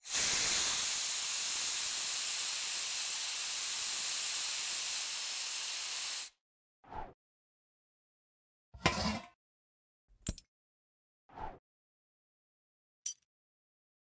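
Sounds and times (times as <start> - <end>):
spray nozzle hissing: 0.1 - 6.3.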